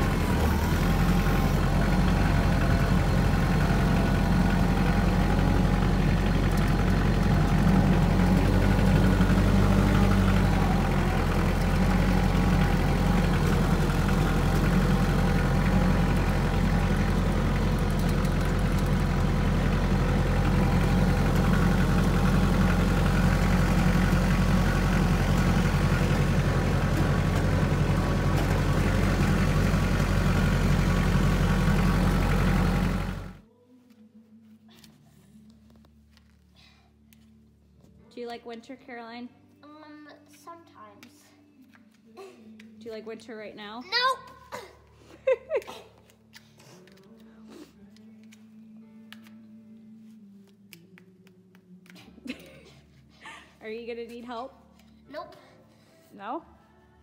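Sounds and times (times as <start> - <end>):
tractor engine running: 0.0 - 33.5.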